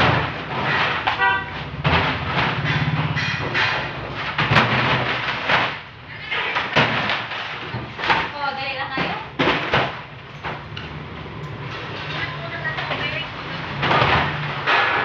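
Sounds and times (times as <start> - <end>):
plastic containers knocking: 0.0 - 11.0.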